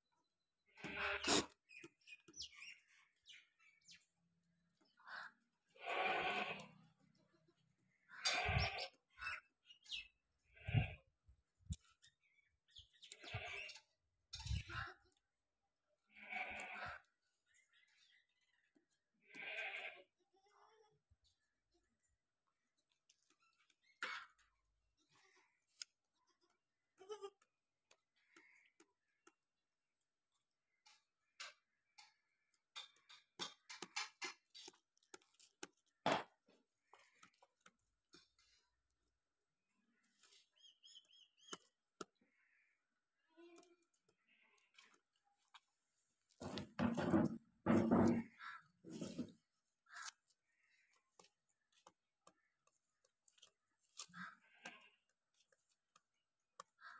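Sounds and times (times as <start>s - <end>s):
goat chewing fodder: 49.0s - 56.9s.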